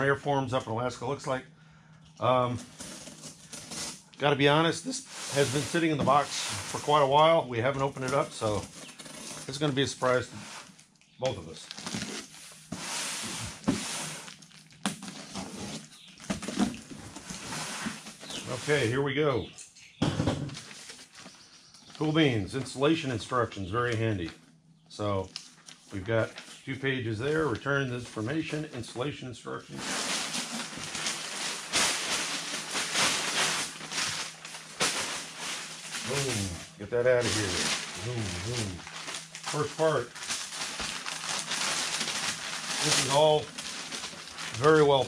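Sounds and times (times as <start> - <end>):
cardboard scraping and rustling: 2.6 - 4.0, 5.0 - 7.3, 8.0 - 10.7, 11.8 - 18.9, 20.2 - 21.3, 29.7 - 45.0
packing tape peeled off: 11.6 - 12.6, 29.8 - 45.0.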